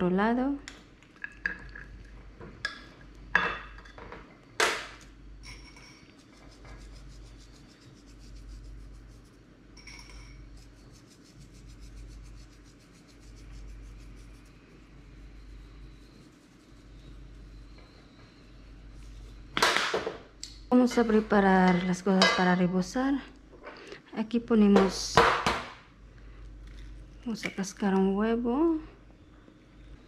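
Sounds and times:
dishes and utensils clinking: 5.4 - 6.2, 9.8 - 10.5.

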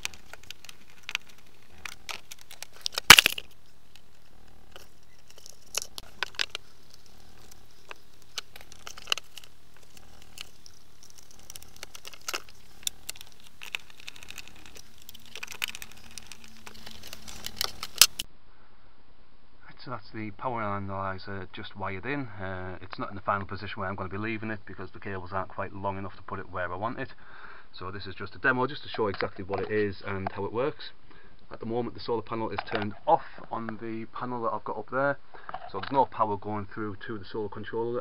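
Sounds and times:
plastic cover rustling: 0.0 - 18.3.

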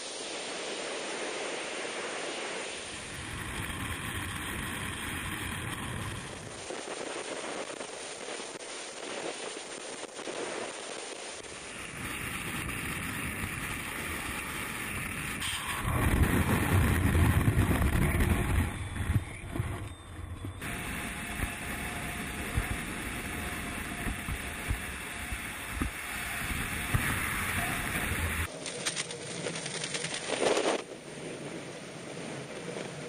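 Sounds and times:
wind rushing on microphone: 0.0 - 28.5.

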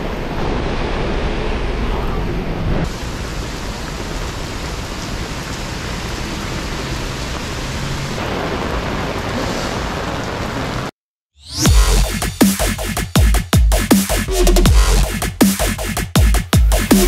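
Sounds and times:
heavy rain hissing: 0.0 - 10.9.

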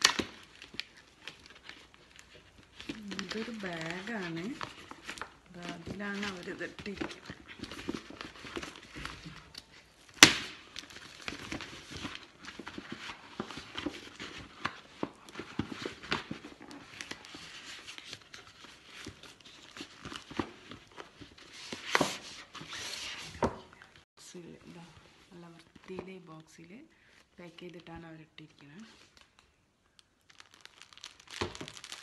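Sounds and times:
plastic bag crinkling and rustling: 0.0 - 32.0.

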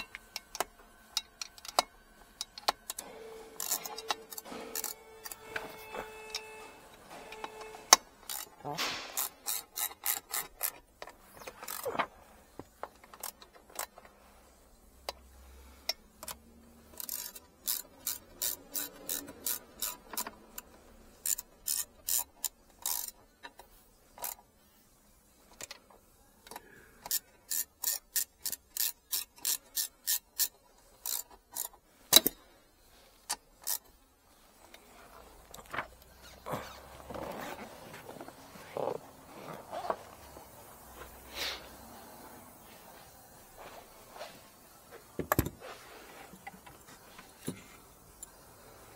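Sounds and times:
socket ratchet clicking: 0.0 - 3.0, 3.6 - 6.6, 7.3 - 11.9, 12.8 - 14.0, 15.9 - 23.6, 26.5 - 32.4, 33.2 - 33.9.

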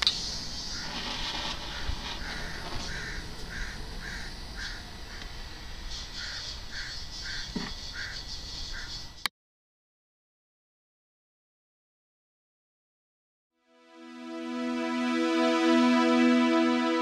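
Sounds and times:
bird calling: 0.0 - 9.3.

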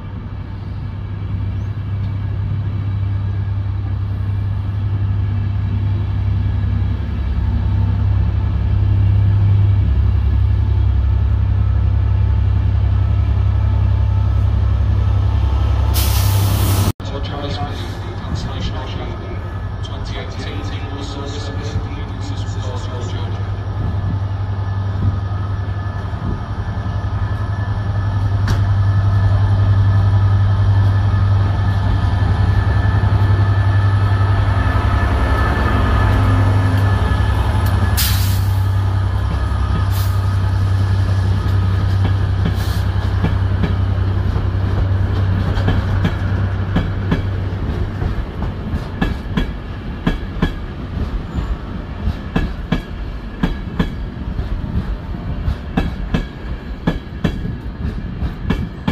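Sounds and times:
diesel locomotive engine drone: 0.0 - 58.9
train wheels clicking over rail joints: 41.4 - 58.9.

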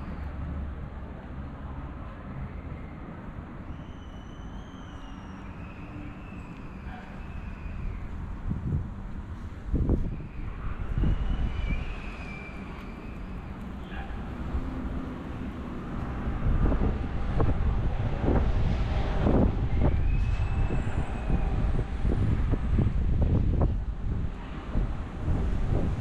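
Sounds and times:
road traffic passing: 0.0 - 26.0
wind buffeting microphone: 7.2 - 26.0.

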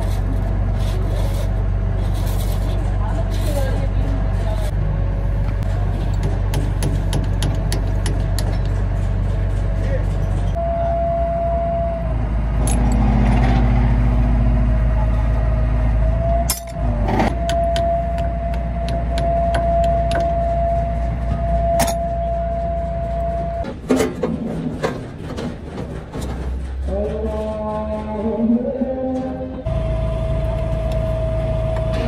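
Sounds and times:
excavator engine hum: 0.0 - 32.0
high whine: 10.6 - 15.0, 16.0 - 23.7, 29.7 - 32.0.

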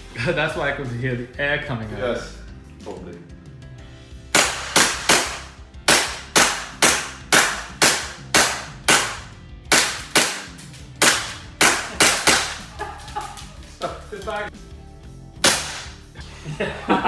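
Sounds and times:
bb gun shots: 4.3 - 12.6, 15.4 - 16.0.

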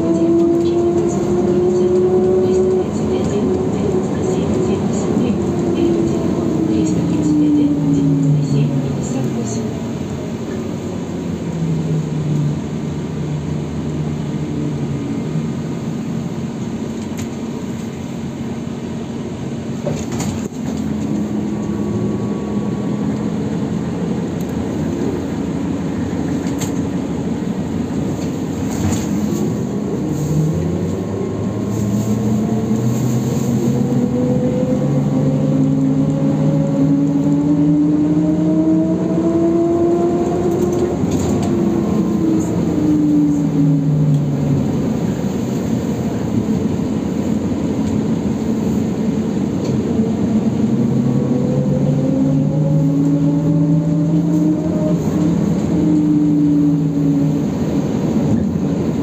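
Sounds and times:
ride rumble: 0.0 - 59.0
trolleybus motor hum: 0.0 - 59.0.

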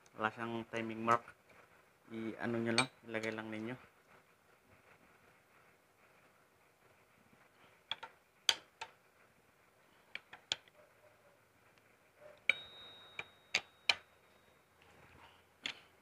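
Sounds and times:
screwdriver clinking on metal gears: 12.4 - 14.6
high metallic ringing tone: 12.5 - 14.8.

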